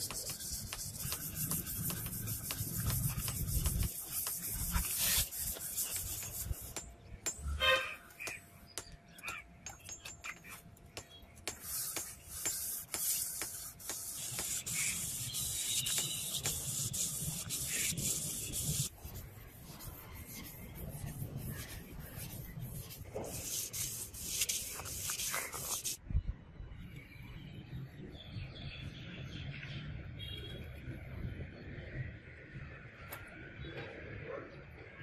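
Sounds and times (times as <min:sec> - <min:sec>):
sanding metal blade: 0:00.0 - 0:26.0.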